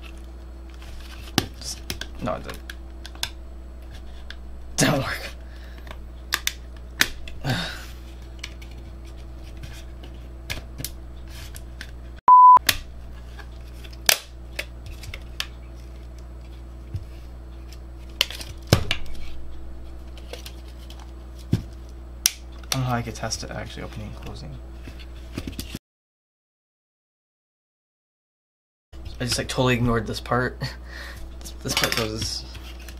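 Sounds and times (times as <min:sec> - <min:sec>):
loud steady bleep tone: 0:12.3 - 0:12.6.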